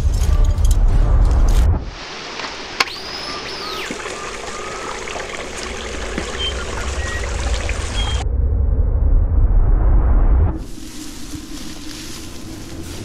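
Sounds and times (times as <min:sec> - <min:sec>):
low rumble: 0:00.0 - 0:02.0, 0:05.6 - 0:13.0
stream running over rocks: 0:01.9 - 0:08.2.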